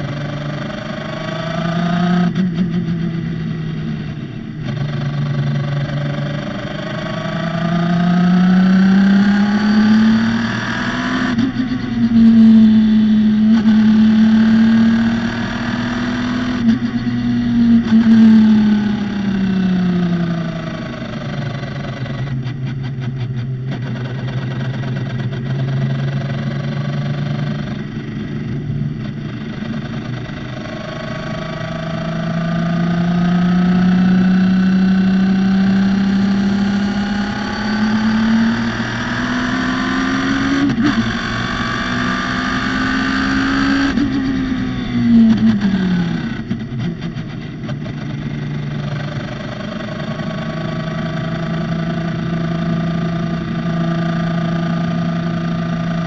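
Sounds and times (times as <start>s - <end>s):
racing car engine revving: 0.0s - 22.8s, 28.5s - 44.6s.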